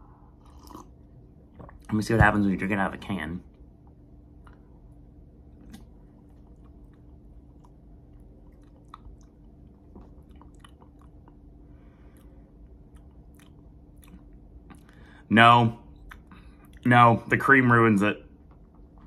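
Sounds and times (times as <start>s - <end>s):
low steady hum: 0.0s - 19.0s
lip smacks and mouth clicks: 5.6s - 11.5s, 12.1s - 15.0s, 16.0s - 16.9s, 18.4s - 19.0s.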